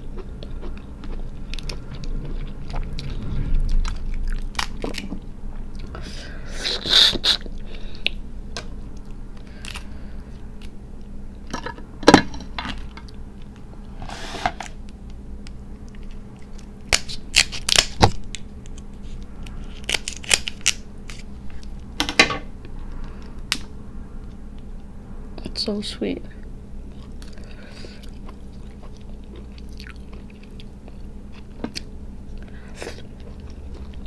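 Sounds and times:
crab shell cracking: 0:19.7 - 0:21.2.

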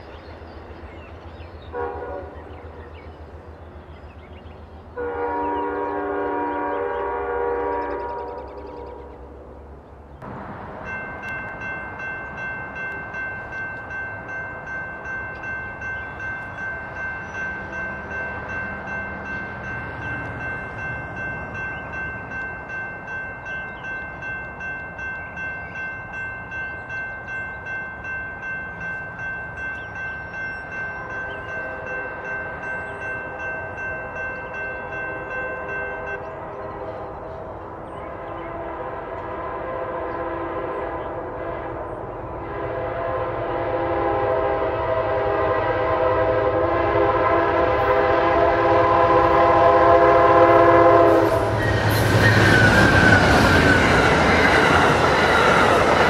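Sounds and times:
locomotive horn: 0:01.7 - 0:02.6, 0:05.0 - 0:09.4, 0:33.4 - 0:56.0
crossing bell ringing: 0:10.3 - 0:37.1.

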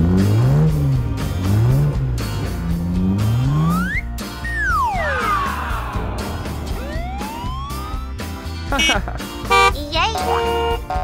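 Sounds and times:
cartoon music with steady beat: 0:00.0 - 0:11.0
siren wail rising in pitch: 0:03.7 - 0:08.9.

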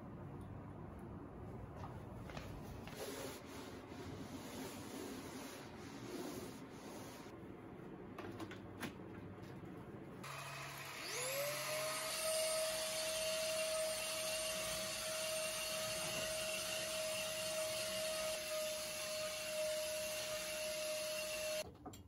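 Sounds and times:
rubbing and handling sounds: 0:01.8 - 0:07.4.

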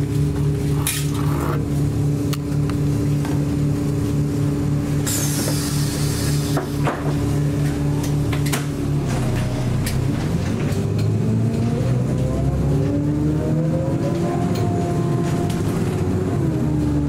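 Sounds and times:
bus engine drone: 0:00.0 - 0:17.0
air hiss: 0:05.1 - 0:06.8.

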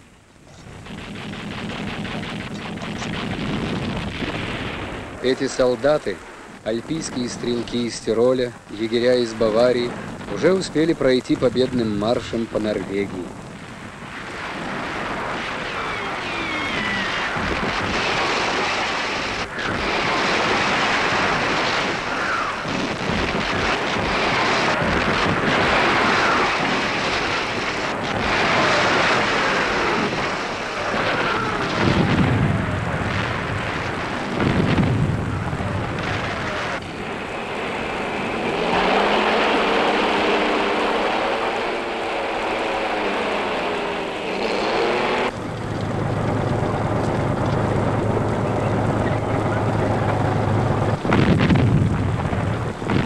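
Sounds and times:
dense rumble: 0:00.0 - 0:53.0
shell explosions: 0:00.4 - 0:41.9
gunfire cracks: 0:00.8 - 0:05.2
incoming shell whistles: 0:15.7 - 0:17.3
wavering engine-like drone: 0:35.2 - 0:51.1.

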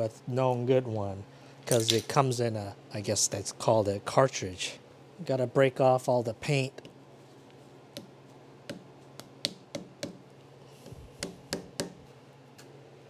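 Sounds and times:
hammer tapping on metal: 0:08.7 - 0:10.2, 0:11.2 - 0:12.0.

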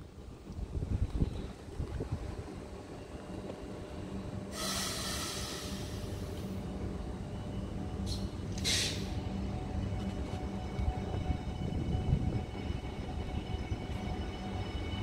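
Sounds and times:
electric train rumbling slowly: 0:00.0 - 0:15.0
air hiss: 0:04.5 - 0:06.6, 0:08.0 - 0:09.2.

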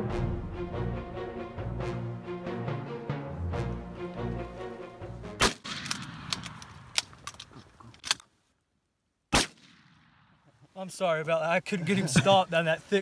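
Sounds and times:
loud sharp crack with ringing tail: 0:05.4 - 0:06.6, 0:09.3 - 0:10.4
shotgun shot: 0:05.4 - 0:06.9, 0:09.3 - 0:10.4.

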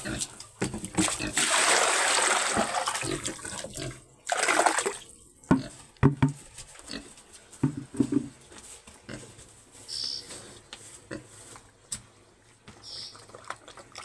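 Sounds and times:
liquid pouring into trough: 0:01.0 - 0:05.0, 0:13.2 - 0:14.0.

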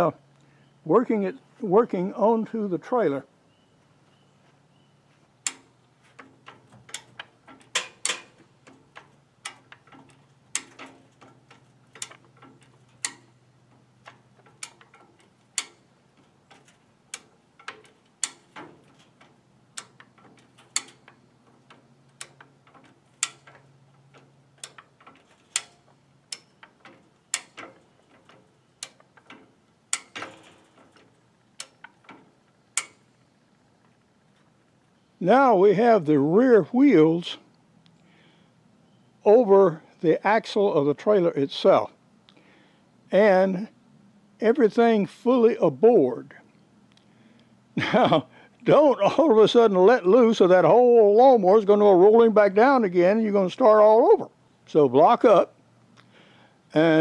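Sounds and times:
jack pins clicking on steel bar: 0:05.4 - 0:33.2.

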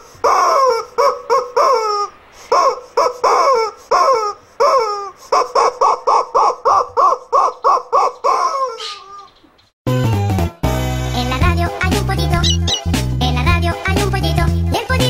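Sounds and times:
rubber chicken toy squawking: 0:00.0 - 0:09.4, 0:12.4 - 0:13.0.

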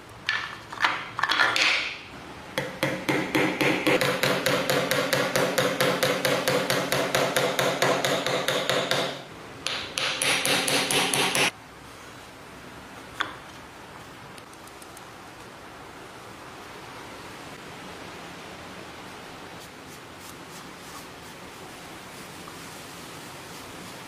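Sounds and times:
hammer tapping on wooden box: 0:02.6 - 0:11.5.

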